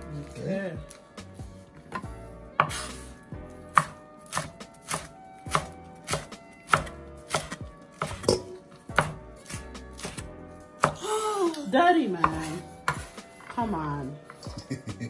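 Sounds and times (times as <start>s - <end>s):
knife chopping on wooden board: 1.9s - 3.0s, 3.7s - 11.0s, 12.2s - 14.5s.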